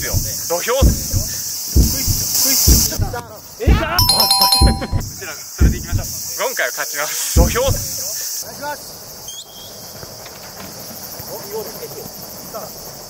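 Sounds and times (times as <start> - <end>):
dull thump: 0.0 - 3.2
night insects chirping: 5.3 - 13.0.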